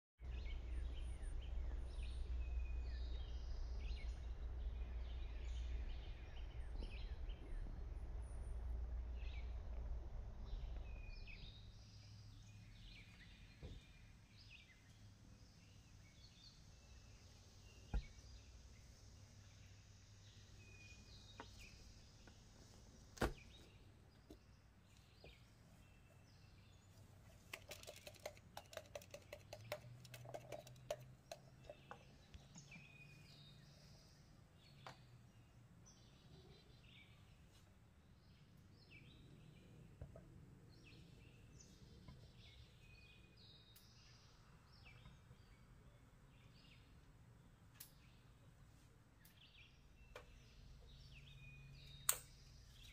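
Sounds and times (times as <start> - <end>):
birds chirping: 0.2 - 9.7, 10.4 - 52.9
low wind rumble: 0.2 - 23.1
small crackling clicks: 27.3 - 32.0.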